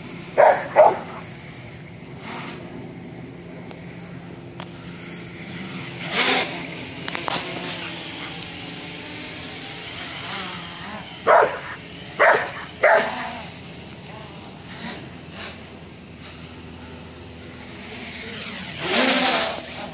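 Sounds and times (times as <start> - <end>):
quadcopter motors humming: 0.0 - 19.9
dog barking: 0.4 - 1.2, 11.3 - 13.2.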